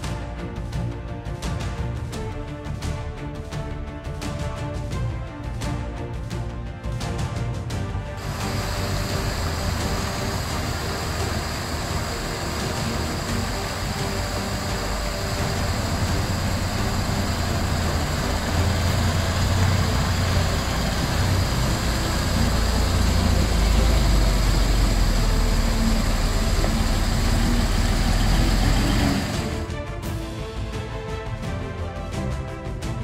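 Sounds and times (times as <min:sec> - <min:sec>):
music: 0:00.0 - 0:33.0
diesel truck engine running: 0:08.2 - 0:29.7
small waterfall rushing: 0:08.2 - 0:29.7.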